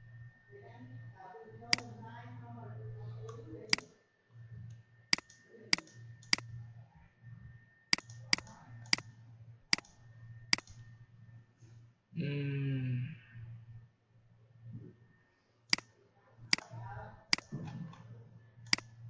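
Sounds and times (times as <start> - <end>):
steady low hum: 0.0 - 19.0
computer mouse clicking: 1.7 - 1.9, 3.2 - 4.0, 4.6 - 6.6, 7.9 - 9.1, 9.7 - 10.9, 15.7 - 15.9, 16.5 - 18.9.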